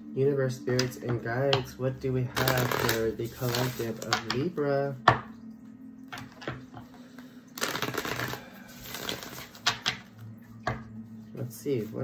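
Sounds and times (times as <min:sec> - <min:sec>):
cards riffling: 0:07.6 - 0:09.8
cards snapping: 0:07.6 - 0:10.0.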